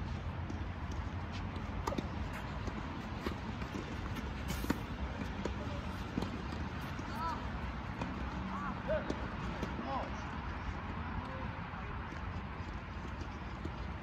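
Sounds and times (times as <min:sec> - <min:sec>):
tennis ball bouncing on court: 0:00.3 - 0:10.0.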